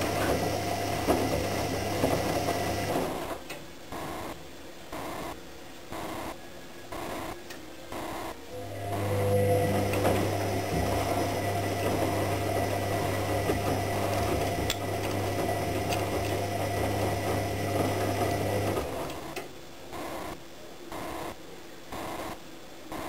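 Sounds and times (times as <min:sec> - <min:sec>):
washing machine spinning: 0:00.0 - 0:03.4, 0:07.9 - 0:19.4.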